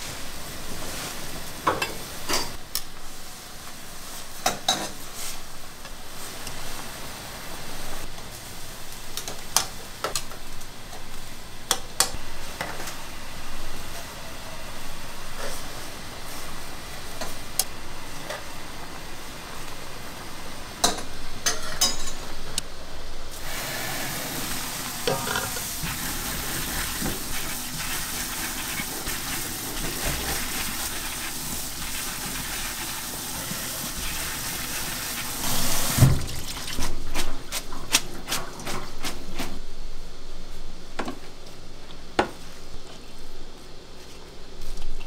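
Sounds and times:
kitchen clattering: 20.8 - 22.3
steady hiss: 22.4 - 36.2.

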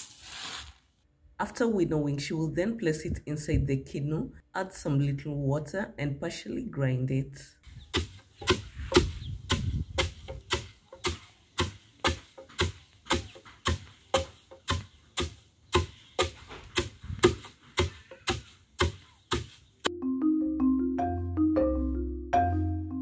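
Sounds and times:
wooden pestles pounding grain: 7.9 - 19.9
marimba background music: 19.9 - 23.0.

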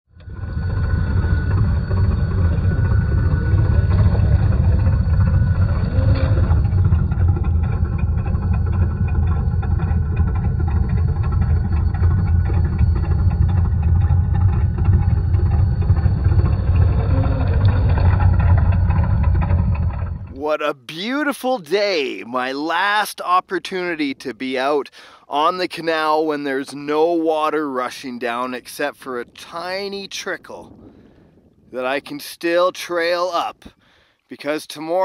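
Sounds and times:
simulated truck engine idling: 0.2 - 20.5.

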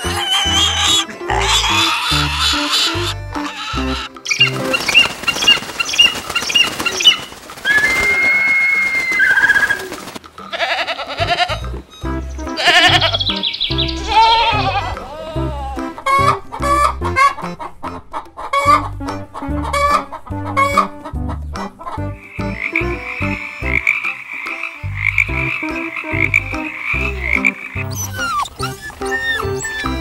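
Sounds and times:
tree frog pulsing trill: 0.0 - 9.9, 22.2 - 30.0.

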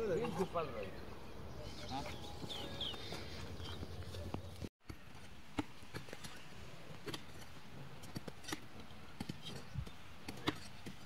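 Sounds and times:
hoes knocking and scraping soil: 2.4 - 11.0.

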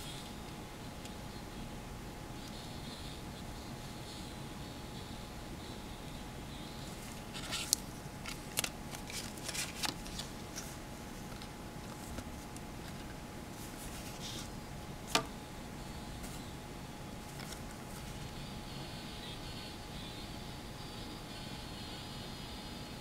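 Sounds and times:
paper rustling: 7.0 - 14.5, 17.3 - 18.3.

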